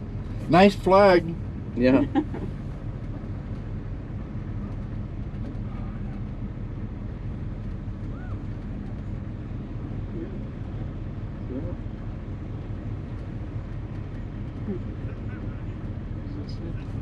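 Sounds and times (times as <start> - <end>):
car engine rumble: 0.0 - 17.0
road noise: 0.0 - 17.0.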